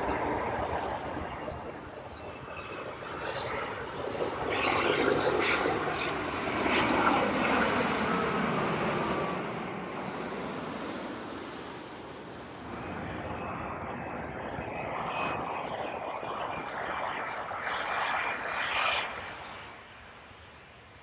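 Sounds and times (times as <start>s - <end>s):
airliner passing close by: 0.0s - 21.0s.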